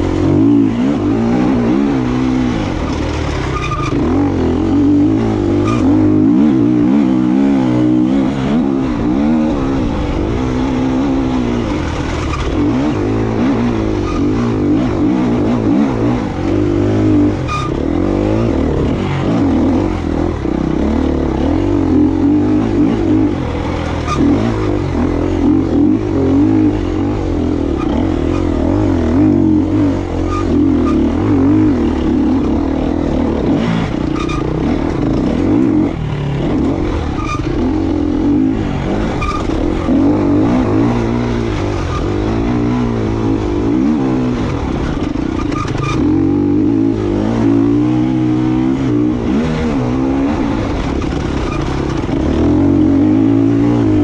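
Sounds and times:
dirt bike engine revving: 0.0s - 54.0s.

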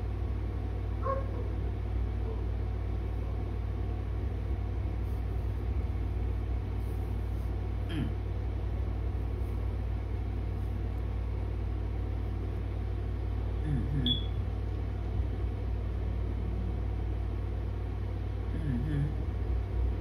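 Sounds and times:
faint vocal sound: 13.6s - 14.1s, 18.5s - 19.3s.

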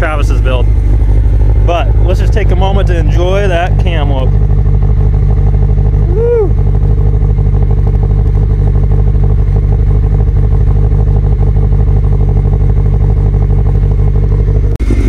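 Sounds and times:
car engine idling: 0.0s - 15.0s
person shouting: 6.0s - 6.6s.

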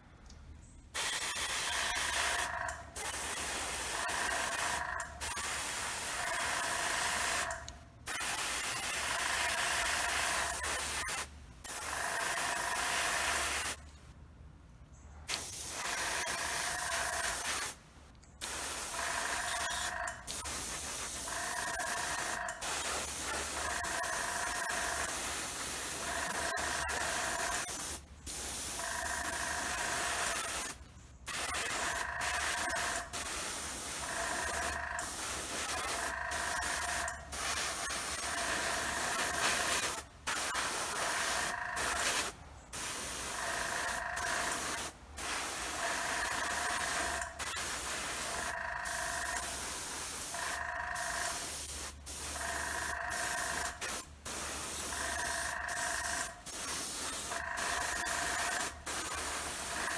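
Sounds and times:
airbrush spraying hiss: 15.3s - 17.8s, 18.4s - 18.9s, 19.5s - 28.8s, 30.2s - 36.0s, 39.2s - 43.4s, 44.4s - 48.3s, 49.3s - 50.4s, 51.3s - 52.3s, 53.7s - 54.9s, 56.4s - 59.7s.

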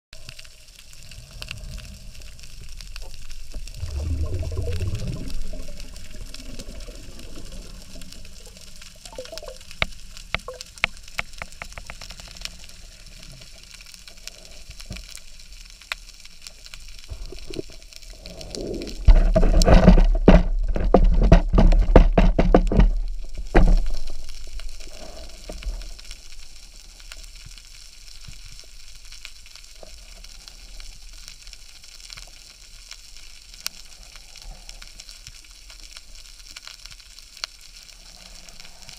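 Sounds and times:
faint crackle of clicks underwater: 0.2s - 38.9s
rushing water: 1.0s - 13.3s.

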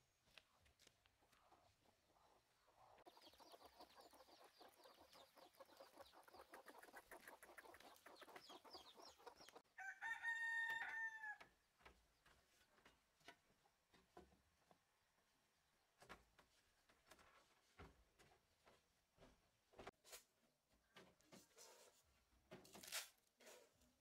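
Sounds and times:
chickens clucking: 1.2s - 9.7s
rooster crowing: 9.8s - 11.5s.

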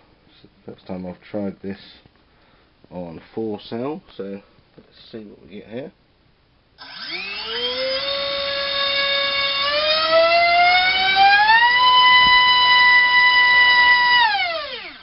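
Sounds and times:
electric motor whine: 6.8s - 15.0s.

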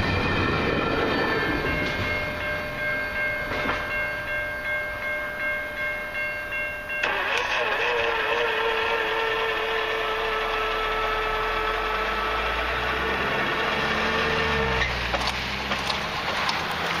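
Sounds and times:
freight train whine and rumble: 0.0s - 17.0s
low engine-like sound: 7.0s - 17.0s.

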